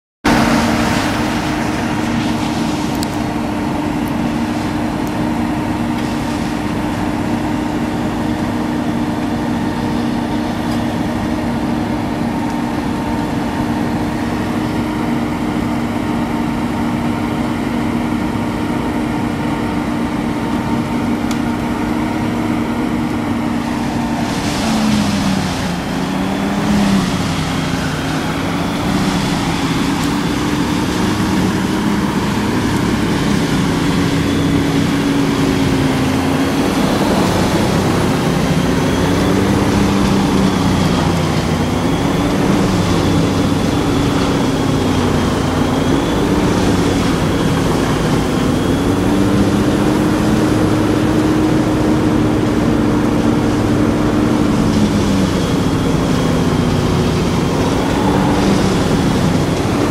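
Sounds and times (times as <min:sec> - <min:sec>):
wood chipper engine running: 0:00.2 - 0:59.9
coarse rush of chipping trees: 0:21.0 - 0:59.9.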